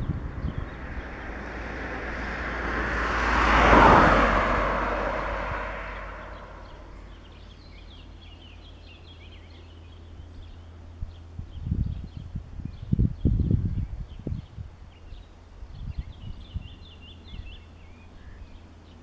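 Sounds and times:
vehicle passing by: 0.0 - 8.3
birds chirping faintly: 4.5 - 19.0.

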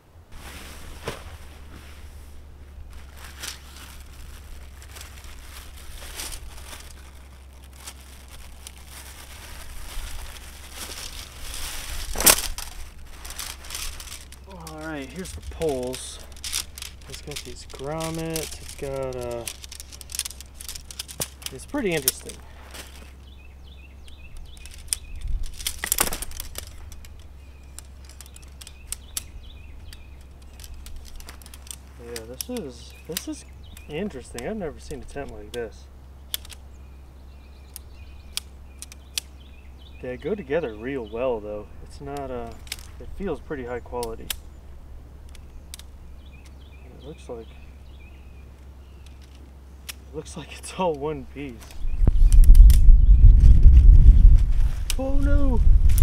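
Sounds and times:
low steady rumble: 0.0 - 56.0
tent fabric rustling and crinkling: 0.3 - 23.4, 24.1 - 35.8, 51.4 - 56.0.

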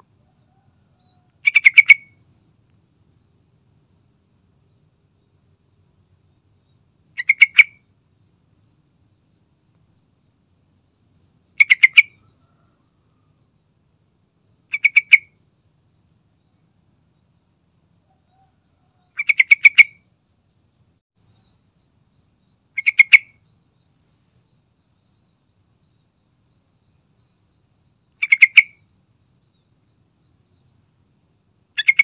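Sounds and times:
bird calling: 0.0 - 2.3, 7.1 - 7.9, 11.5 - 12.8, 14.6 - 15.4, 18.1 - 20.0, 22.7 - 23.5, 28.1 - 28.9, 31.8 - 32.0.

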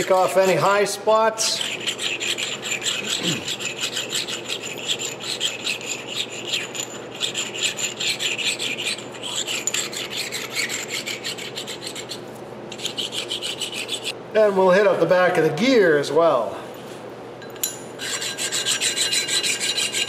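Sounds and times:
stone scraping on steel: 1.6 - 12.2, 17.7 - 20.0.

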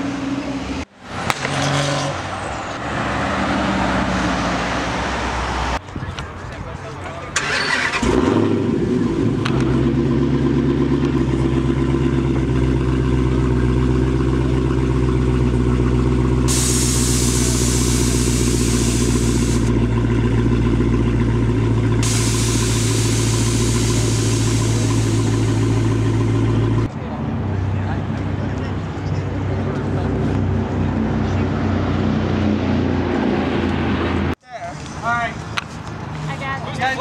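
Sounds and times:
car engine starting and idling: 7.2 - 26.9
loud hiss: 16.5 - 19.7, 22.0 - 26.2.

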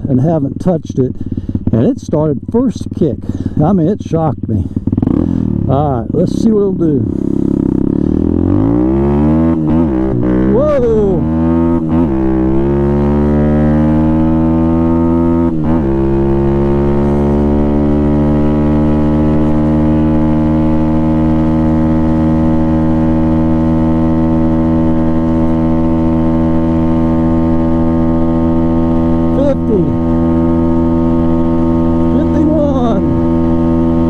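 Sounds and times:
dirt bike engine at full throttle: 0.0 - 34.0.

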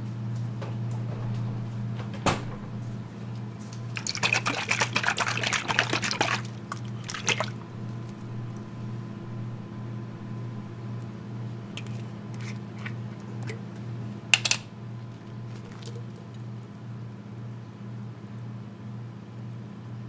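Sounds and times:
low hum: 4.0 - 16.8.

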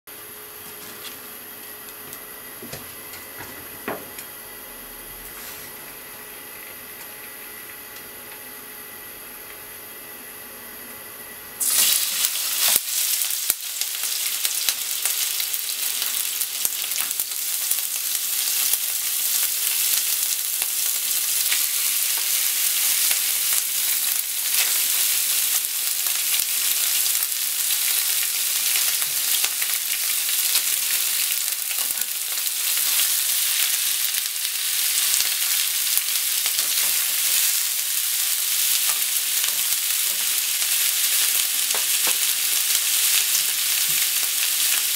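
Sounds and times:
meat sizzling in a frying pan: 11.6 - 44.9.

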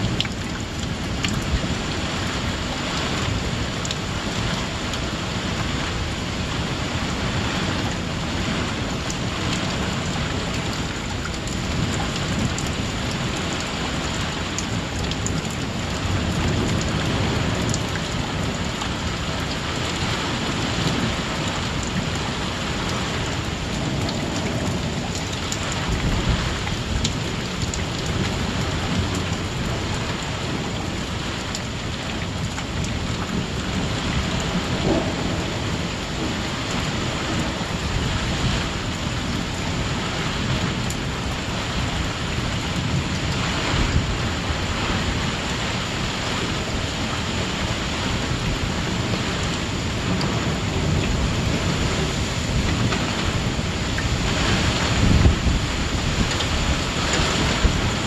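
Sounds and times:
heavy rain downpour: 0.0 - 58.0
rolling thunder: 33.7 - 39.1.

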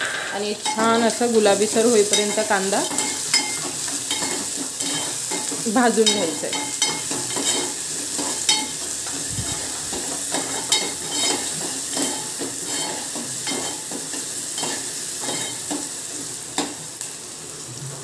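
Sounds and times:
onion sizzling in hot oil: 0.0 - 18.0
steel spoon scraping pot: 2.0 - 13.9.

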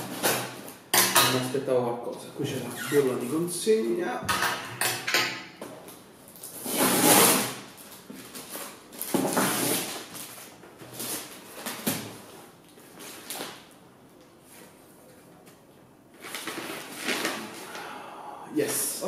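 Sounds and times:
plastic pouch rustling and tearing: 7.8 - 12.0, 16.2 - 17.8.

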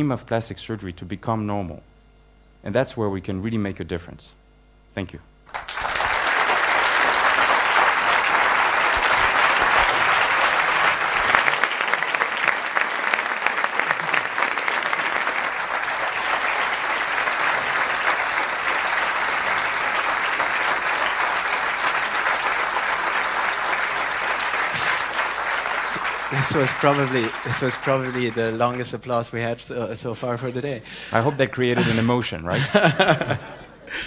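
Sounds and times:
audience applause: 5.5 - 29.3.

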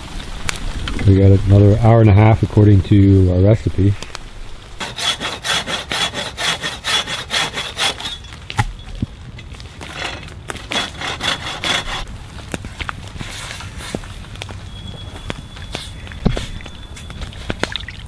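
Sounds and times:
hand saw cutting branch: 4.8 - 8.2, 9.8 - 12.1.

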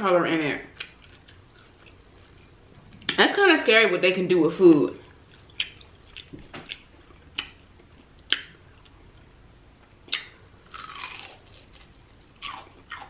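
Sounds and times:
crunchy food chewing: 0.7 - 3.2, 5.0 - 9.3, 10.1 - 13.0.

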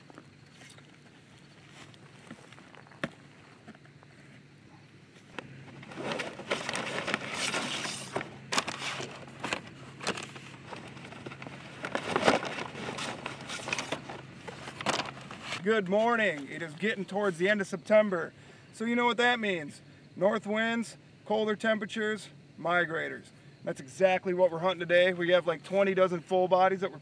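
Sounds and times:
decoy bag rustling: 5.4 - 15.6.

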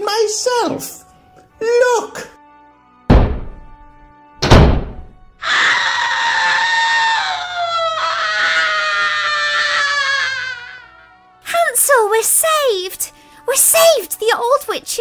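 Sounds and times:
heavy oven door slamming: 3.1 - 5.2
long falling scream: 5.4 - 11.0.

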